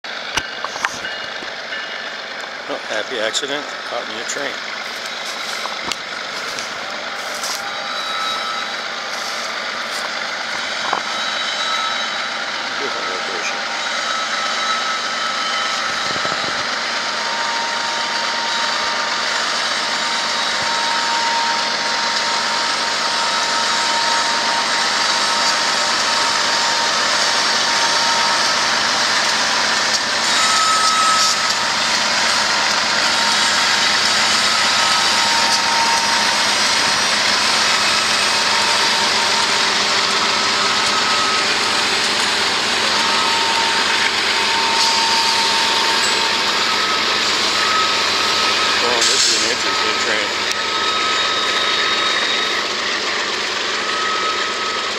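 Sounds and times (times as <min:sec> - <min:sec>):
diesel locomotive engines running: 0:00.0 - 0:54.9
train wheels on rail: 0:00.0 - 0:54.9
faint high whine: 0:06.4 - 0:10.2.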